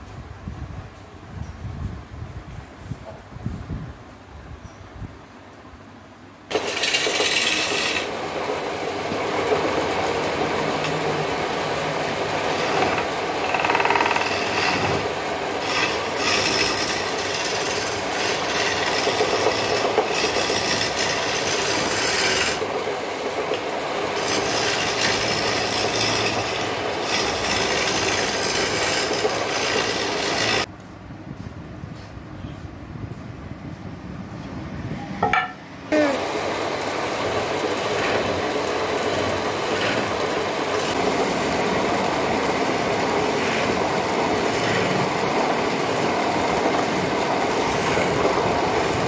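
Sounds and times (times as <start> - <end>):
chisel scraping turning wood: 6.5 - 8.2, 9.0 - 22.7, 23.5 - 30.7, 37.7 - 41.4, 42.8 - 49.0.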